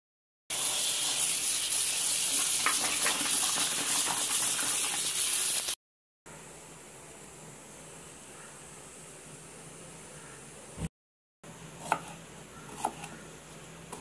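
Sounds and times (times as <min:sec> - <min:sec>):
tap water running into bowl: 0:00.6 - 0:05.7
faint steady hiss: 0:06.3 - 0:10.9.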